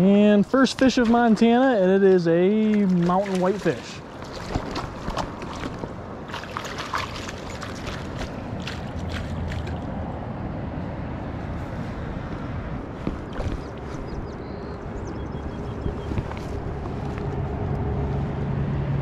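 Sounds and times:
river flowing: 0.2 - 15.1.

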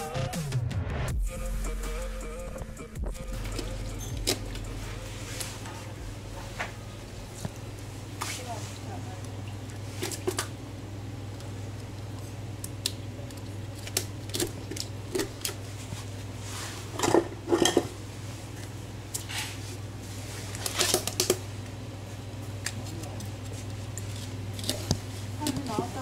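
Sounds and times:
steady low hum: 1.2 - 26.0
dishes and utensils clinking: 16.9 - 18.0.

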